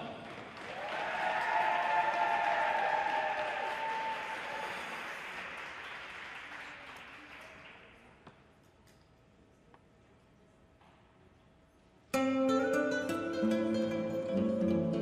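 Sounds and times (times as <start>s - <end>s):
cheering voices: 0.0s - 5.5s
audience applauding: 0.0s - 8.2s.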